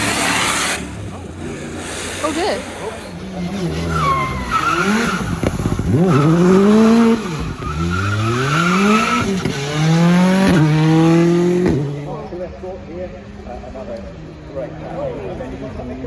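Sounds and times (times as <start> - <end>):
rally car engine revving: 0.0 - 12.3.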